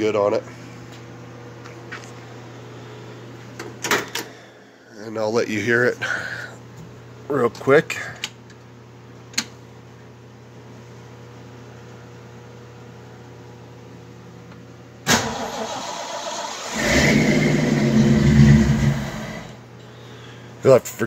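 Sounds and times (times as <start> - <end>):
engine cranking on starter: 15.1 - 19.5.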